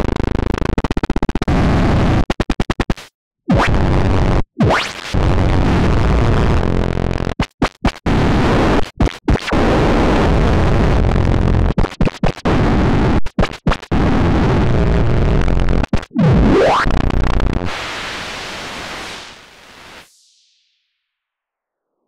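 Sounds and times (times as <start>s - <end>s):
filtered white noise hiss: 17.6s - 20.0s.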